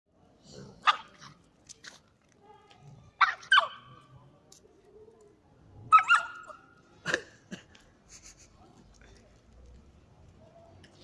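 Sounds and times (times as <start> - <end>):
puppy yelping: 3.2 - 3.9, 5.9 - 6.6.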